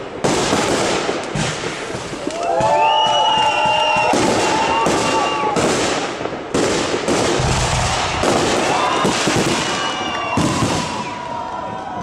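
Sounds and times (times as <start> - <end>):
fireworks crackling: 0.0 - 11.7
deep firework boom: 7.0 - 10.9.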